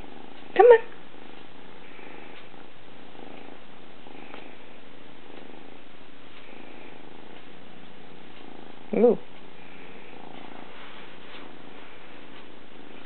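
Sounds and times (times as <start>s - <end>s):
kitten purring: 0.0s - 13.0s.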